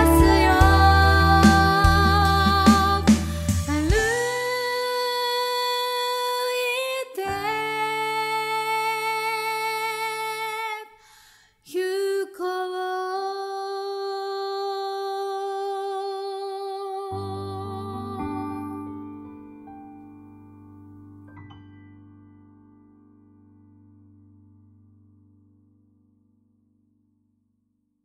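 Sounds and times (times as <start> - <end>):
soft sustained accompaniment: 0.0 - 4.4
piano: 0.0 - 10.8, 12.9 - 27.0
woman singing long notes: 0.0 - 10.8.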